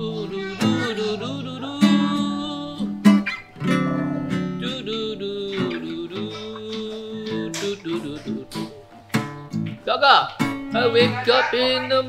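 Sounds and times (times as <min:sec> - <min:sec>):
person singing: 0:00.0 - 0:03.2, 0:04.0 - 0:08.9, 0:10.7 - 0:12.0
acoustic guitar strumming: 0:00.0 - 0:12.0.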